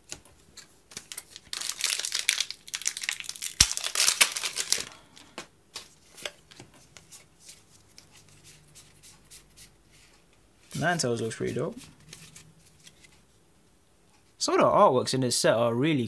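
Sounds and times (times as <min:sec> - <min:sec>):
cards clicking and rustling: 0:00.0 - 0:07.2
foil wrapper crinkling and tearing: 0:00.9 - 0:05.2.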